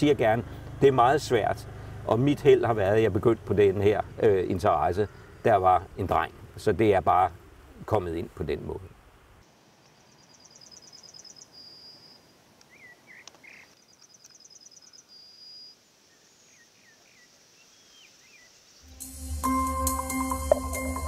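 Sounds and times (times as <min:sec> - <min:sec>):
faint bird chirps: 0:09.9 - 0:18.9
bird singing high repeated notes: 0:10.0 - 0:18.5
electronic music: 0:18.9 - 0:21.0.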